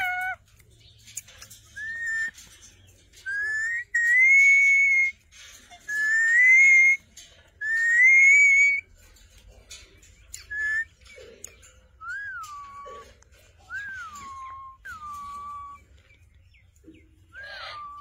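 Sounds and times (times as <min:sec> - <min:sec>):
parakeet whistling: 0:01.8 - 0:02.4, 0:03.2 - 0:05.2, 0:05.9 - 0:07.0, 0:07.6 - 0:08.8, 0:10.4 - 0:10.9, 0:17.4 - 0:18.0.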